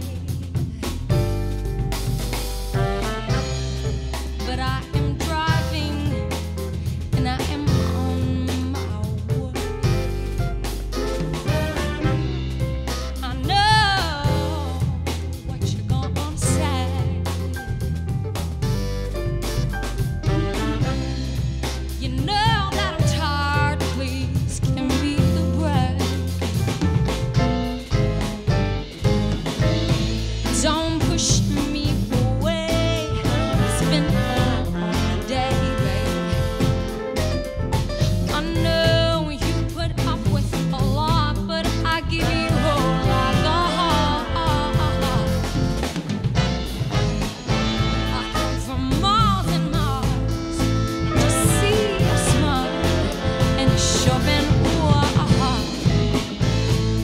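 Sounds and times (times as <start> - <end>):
woman singing: 0.0 - 0.9, 4.4 - 6.4, 7.0 - 10.1, 13.2 - 17.6, 20.2 - 26.4, 30.4 - 36.9, 38.0 - 45.7, 48.0 - 56.4
soul band playing live: 0.0 - 57.0
saxophones: 50.3 - 54.9.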